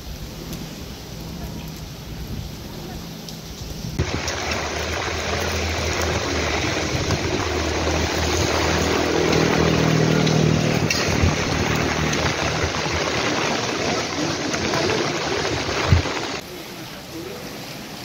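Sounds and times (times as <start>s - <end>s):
heavy rain: 0.0s - 18.0s
running water: 2.6s - 18.0s
low engine hum: 4.0s - 16.4s.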